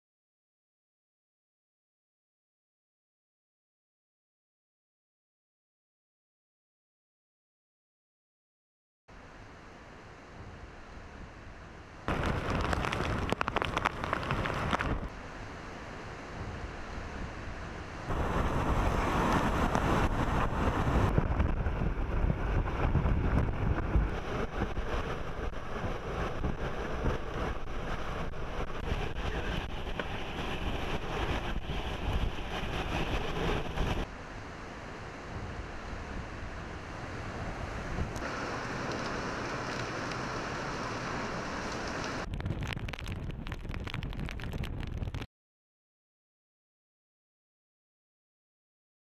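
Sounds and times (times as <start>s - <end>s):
hurricane wind: 9.2s - 45.3s
heavy rain: 12.0s - 45.2s
wind buffeting the microphone: 12.1s - 15.2s, 16.3s - 34.1s, 35.2s - 45.3s.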